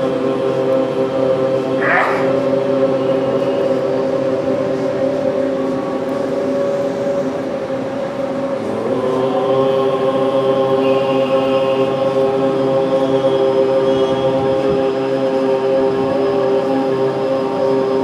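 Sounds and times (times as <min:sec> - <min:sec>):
voices chanting: 0:00.5 - 0:03.6.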